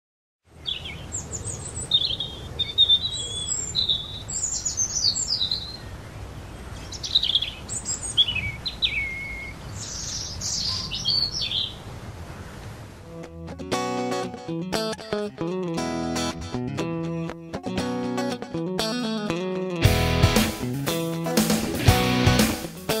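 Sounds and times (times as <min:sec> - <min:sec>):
small birds chirping: 0:00.5 - 0:12.7.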